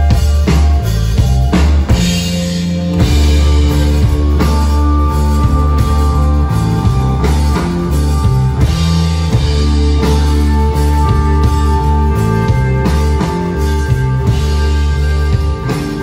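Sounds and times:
rock band playing live: 0.0s - 16.0s.

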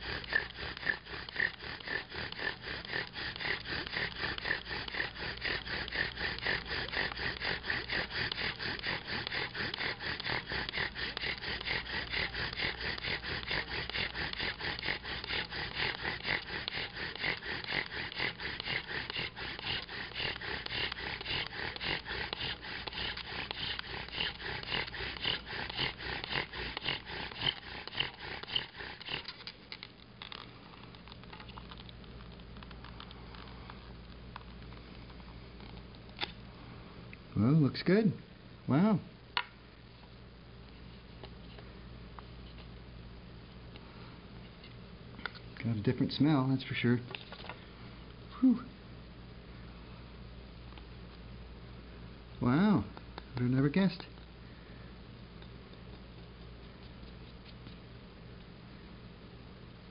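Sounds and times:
wood squeaking and grinding: 0.0s - 29.5s.

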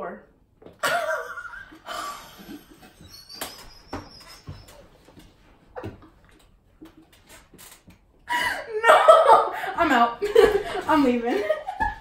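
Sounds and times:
women gasping and laughing: 1.7s - 3.0s, 8.2s - 9.8s.

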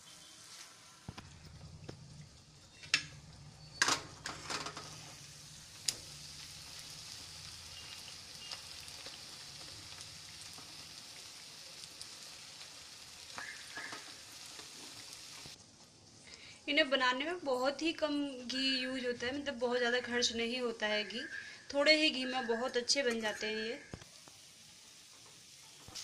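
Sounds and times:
food sizzling in hot oil: 0.0s - 15.6s, 21.9s - 26.0s.

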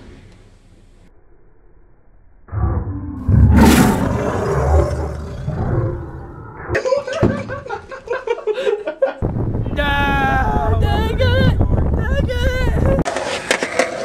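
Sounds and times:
man talking and laughing: 6.7s - 9.2s.

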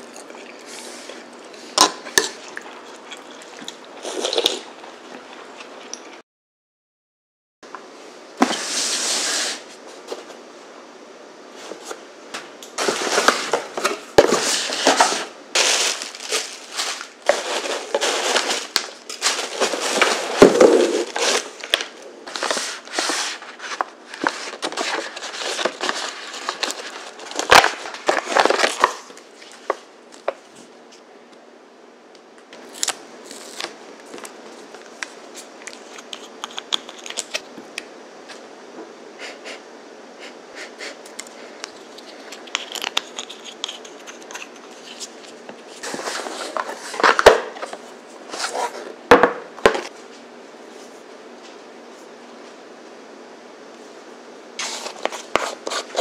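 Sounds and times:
paper crinkling and tearing: 12.8s - 29.1s, 41.7s - 48.8s, 54.6s - 56.0s.

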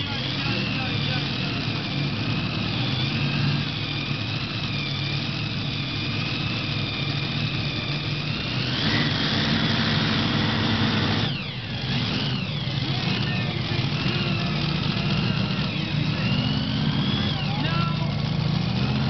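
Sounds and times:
high steady whine: 0.0s - 19.0s
tractor engines idling: 0.0s - 19.0s.

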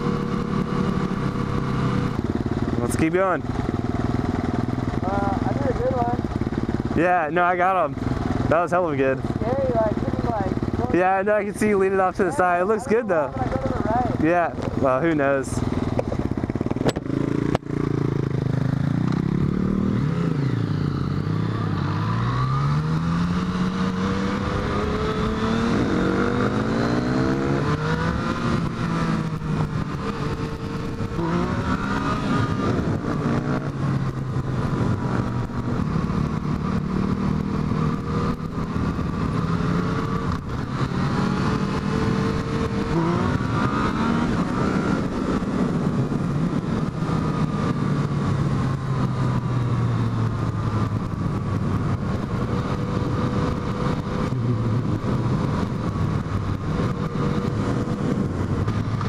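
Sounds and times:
motorcycle engine shifting gears: 0.0s - 59.0s.

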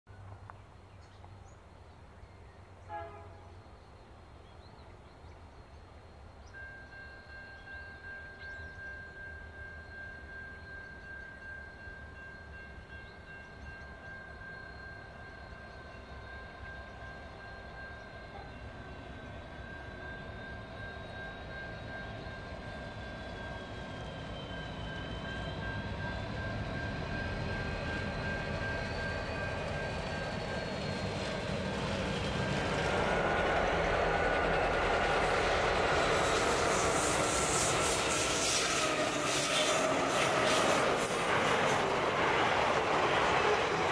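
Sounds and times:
locomotive engine rumble: 16.4s - 43.9s.

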